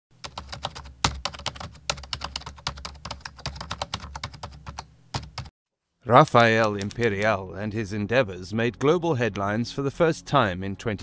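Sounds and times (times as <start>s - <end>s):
keyboard key clicks: 6.4s - 7.3s.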